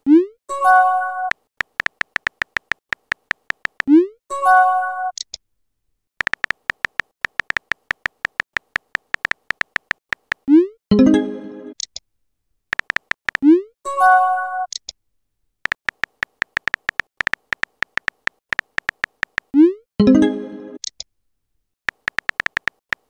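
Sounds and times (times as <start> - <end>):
keyboard tap clicks: 1.6 - 3.9, 6.2 - 10.5, 12.7 - 13.4, 15.7 - 19.5, 21.9 - 23.0.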